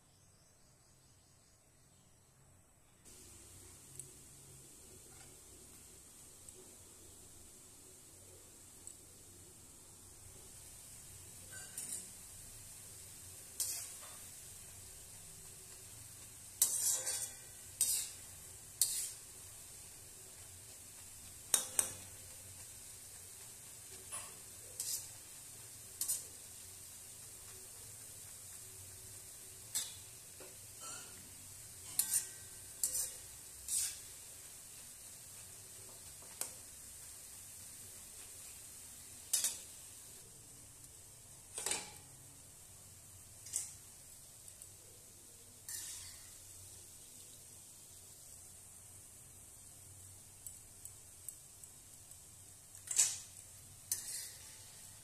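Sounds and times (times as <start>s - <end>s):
hot oil sizzling: 1.8s - 55.0s
metal spoon clinking against pan: 11.5s - 12.2s, 16.6s - 18.2s, 18.8s - 19.2s, 21.5s - 22.2s, 24.0s - 25.2s, 29.7s - 34.1s, 39.3s - 39.7s, 41.5s - 42.1s, 45.6s - 46.4s, 53.9s - 54.6s
metal ladle scraping an iron pan: 13.6s - 14.1s, 16.6s - 18.2s, 30.8s - 31.2s, 31.8s - 34.1s, 45.7s - 46.3s, 53.9s - 54.7s.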